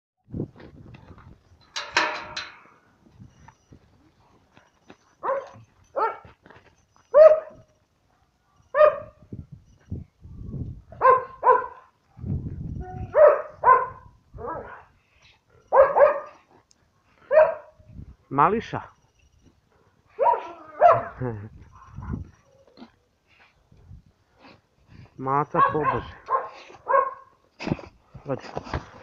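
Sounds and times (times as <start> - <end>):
dog barking: 5.2 - 6.3, 7.1 - 7.6, 8.2 - 9.2, 11.0 - 11.9, 13.1 - 14.9, 15.7 - 16.5, 17.2 - 17.8, 20.2 - 21.2, 25.6 - 27.3.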